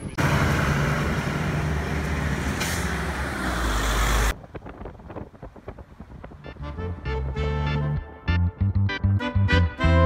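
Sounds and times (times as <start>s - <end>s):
vehicle engine rumble: 0.0s - 8.1s
road noise hiss: 0.2s - 7.3s.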